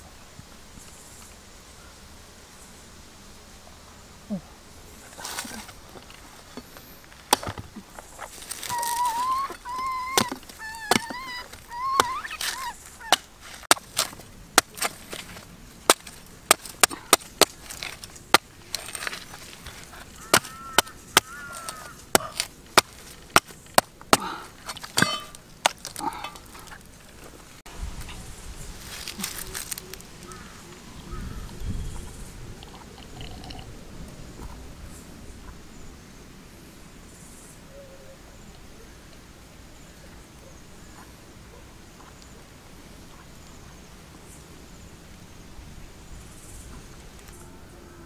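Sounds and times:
machete chopping coconut: 8.6 - 19.2, 20.3 - 26.0
wavering high-pitched call: 8.7 - 13.1.

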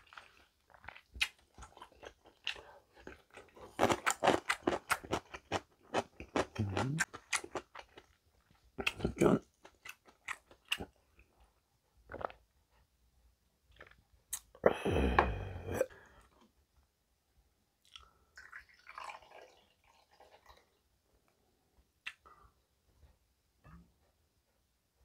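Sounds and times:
loud mouth sound: 6.6 - 7.1, 14.3 - 15.9
liquid pouring into shot glass: 18.4 - 20.6.

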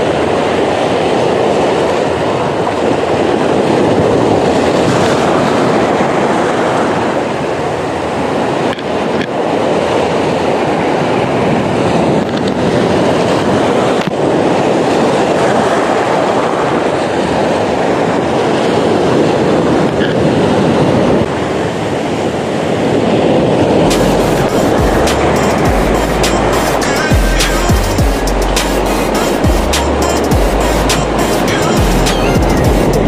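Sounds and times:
surf breaking on rocky shore: 0.1 - 24.8.

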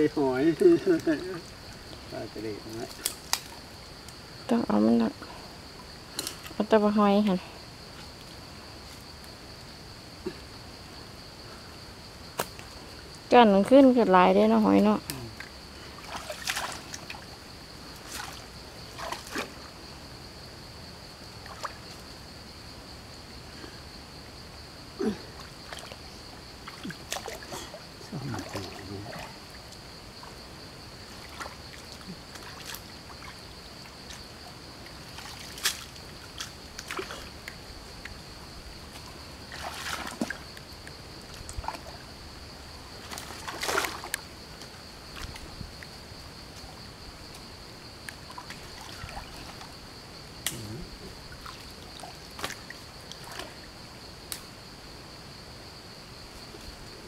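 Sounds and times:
stream water splashing: 15.1 - 19.8, 21.3 - 22.1, 25.3 - 38.2, 38.8 - 46.9, 48.0 - 50.0, 51.1 - 54.0.

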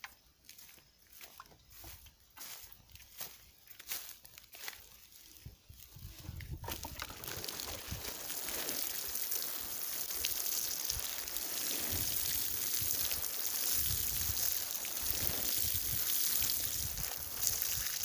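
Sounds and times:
water splashing onto soil: 6.4 - 18.0.

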